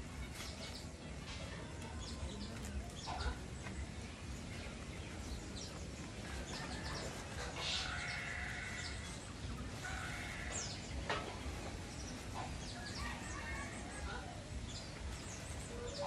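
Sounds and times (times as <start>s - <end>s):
farm animal calling: 7.0s - 11.4s.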